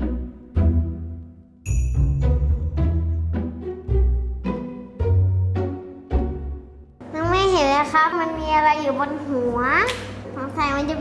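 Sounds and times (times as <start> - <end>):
deep struck notes: 0.0 - 7.1.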